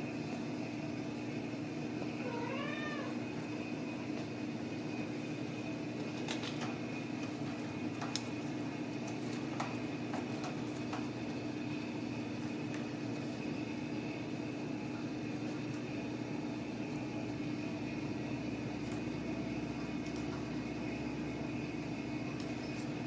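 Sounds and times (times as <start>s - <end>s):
steady background hum: 0.0s - 23.0s
kitten meowing: 2.2s - 3.2s.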